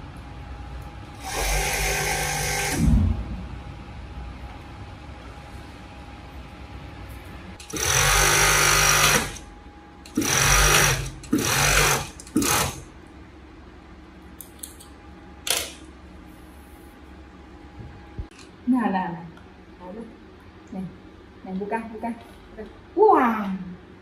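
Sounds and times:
sewing machine stitching: 7.6 - 9.4, 10.1 - 12.8.

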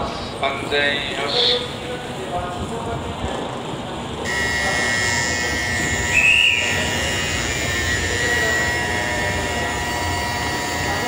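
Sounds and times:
train humming at platform: 0.0 - 11.0
steady high tone: 4.3 - 11.0
whistle blast: 4.3 - 11.0.

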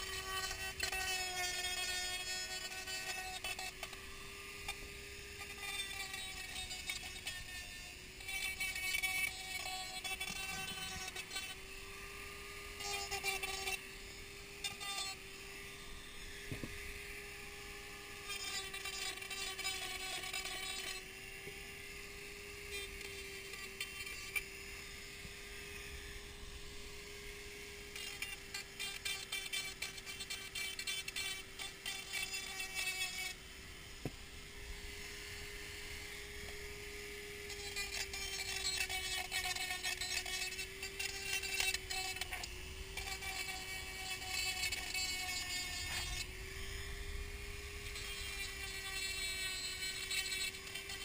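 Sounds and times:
rotary tool whining: 0.0 - 51.0.

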